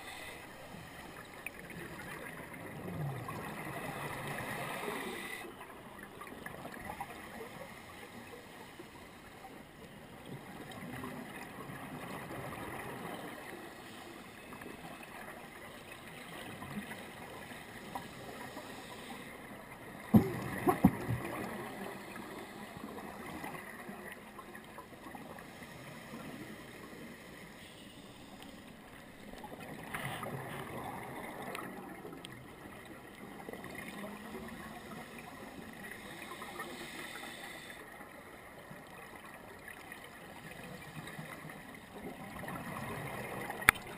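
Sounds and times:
underwater water noise: 0.0 - 43.9
diver's exhaled bubbles gurgling: 20.0 - 22.2.

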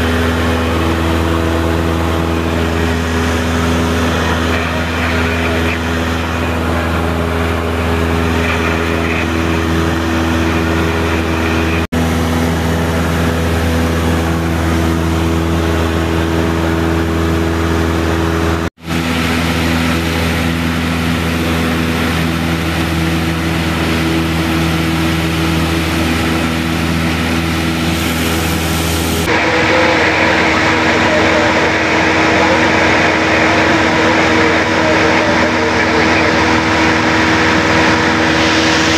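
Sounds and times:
propeller plane engine drone: 0.0 - 38.9.

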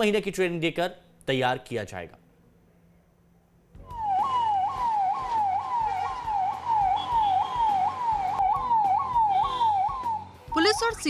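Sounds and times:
police siren yelping: 3.8 - 11.0.

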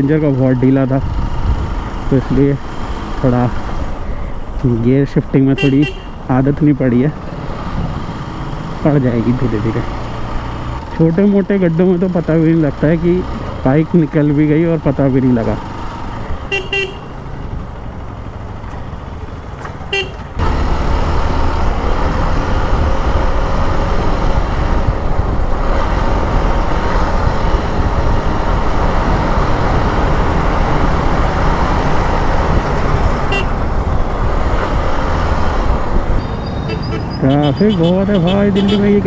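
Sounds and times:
wind and road noise: 0.0 - 39.0
vehicle horn beeps: 16.5 - 17.1, 19.9 - 20.2, 33.3 - 33.5, 36.2 - 38.8.

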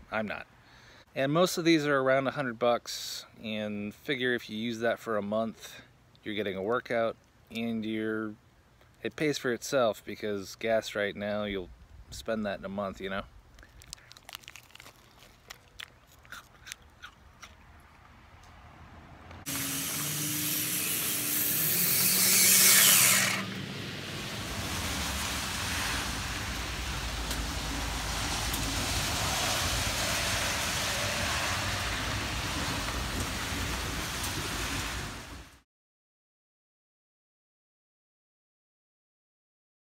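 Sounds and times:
plastic sleeve crinkling: 13.4 - 17.7
rain hissing: 19.4 - 35.6
rushing surge: 19.5 - 35.6.

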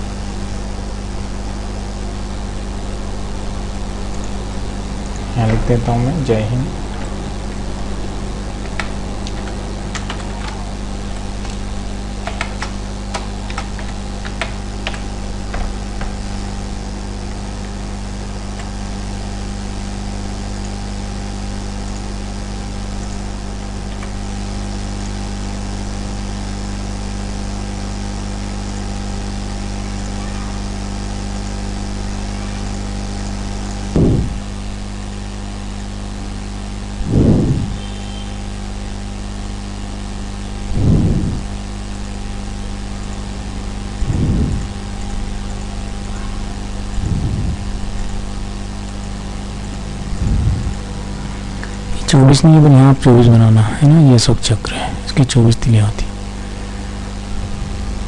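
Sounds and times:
low electrical hum: 0.0 - 58.0
keyboard clicks: 8.6 - 11.6, 12.2 - 16.2
short low thumps: 33.9 - 34.4, 37.0 - 37.8, 40.7 - 41.5, 44.0 - 44.9, 47.0 - 47.9, 50.0 - 52.0.

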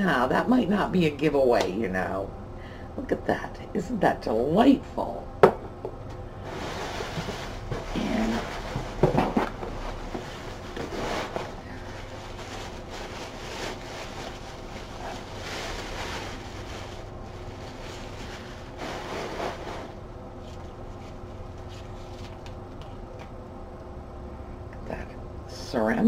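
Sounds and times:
packing wrap rustling and crinkling: 9.7 - 23.1.

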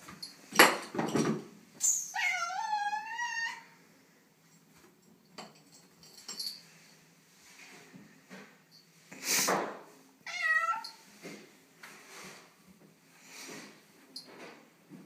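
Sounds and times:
cat meowing: 2.1 - 3.6, 10.2 - 11.0.

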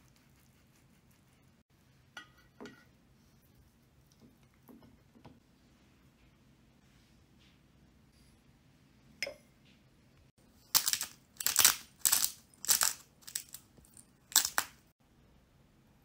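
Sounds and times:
pepper mill grinding: 10.7 - 14.8.

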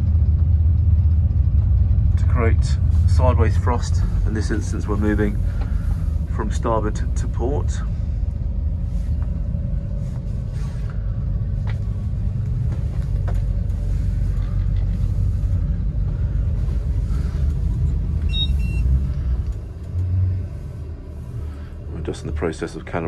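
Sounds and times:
outboard engines rumbling: 0.0 - 23.0
short electronic beep: 18.3 - 18.9.

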